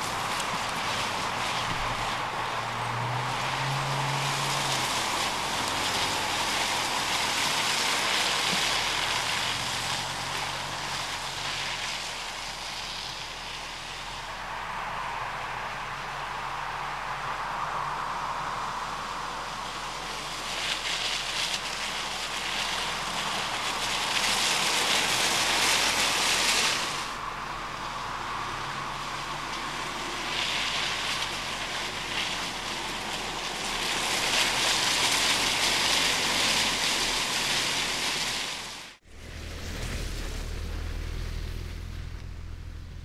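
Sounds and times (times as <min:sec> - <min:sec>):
tyres hissing on wet ground: 0:00.0 - 0:42.9
faint low engine hum: 0:38.8 - 0:43.0.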